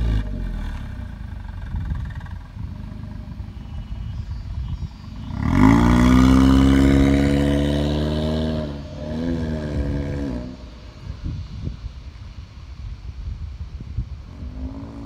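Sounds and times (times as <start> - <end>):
car engine revving: 5.2 - 10.9.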